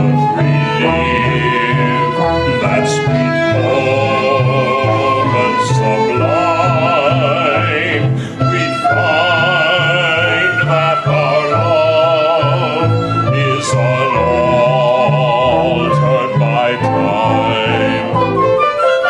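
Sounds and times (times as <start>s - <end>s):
flute: 0.0s - 19.0s
keyboard: 0.0s - 19.0s
man singing with vibrato: 0.0s - 19.0s
violins: 0.0s - 19.0s.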